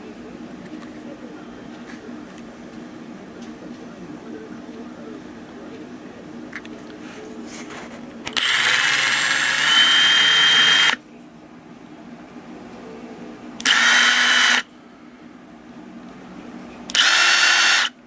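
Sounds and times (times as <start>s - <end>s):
impact driver motor whine: 8.3s - 11.0s, 13.6s - 14.7s, 16.9s - 18.0s.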